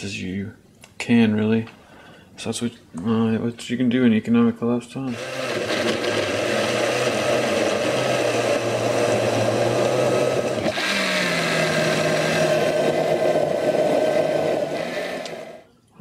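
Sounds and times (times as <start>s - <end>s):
blender motor running: 5.1s - 15.6s.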